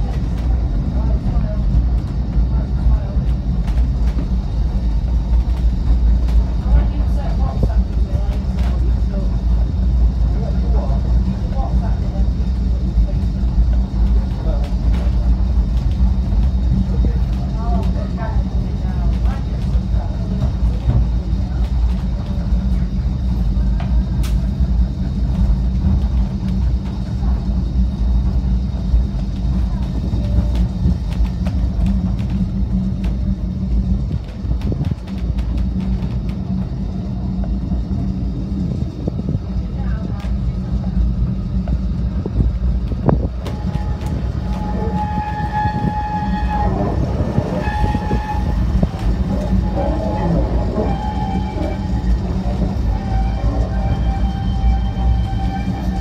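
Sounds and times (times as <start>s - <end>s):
tramcar rumbling on rails: 0.0s - 56.0s
high metallic wheel squeal: 43.6s - 56.0s.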